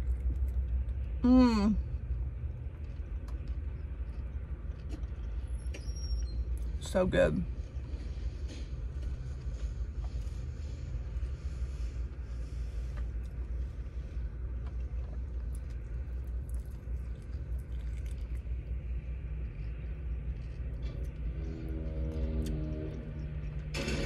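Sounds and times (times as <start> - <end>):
chewing chicken wing: 0.0 - 1.2, 1.8 - 5.5, 12.4 - 23.5
low rumble inside car: 0.0 - 24.0.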